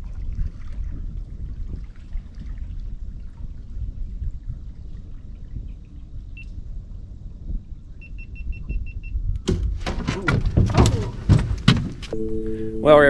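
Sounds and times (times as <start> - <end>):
wind and water rumble: 0.0 - 12.2
high electronic beeps: 12.2 - 13.0.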